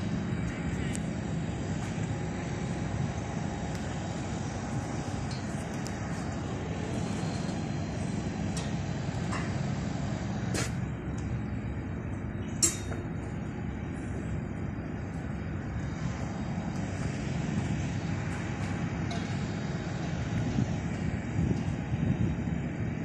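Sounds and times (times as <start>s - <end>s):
machinery rumble: 0.0s - 23.0s
sharp metal clank: 12.6s - 13.0s.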